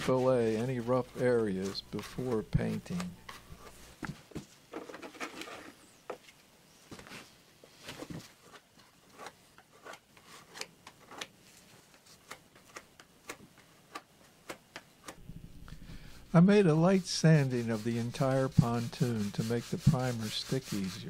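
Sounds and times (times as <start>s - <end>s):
plastic spreader scraping filler: 16.3s - 21.0s.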